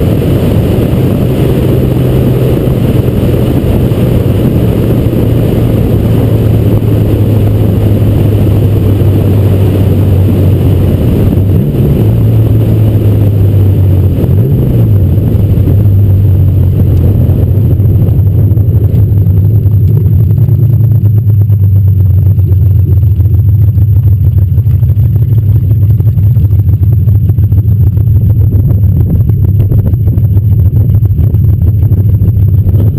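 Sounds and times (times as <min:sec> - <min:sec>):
car engine running: 0:00.0 - 0:32.9
wind and road noise: 0:00.0 - 0:32.9.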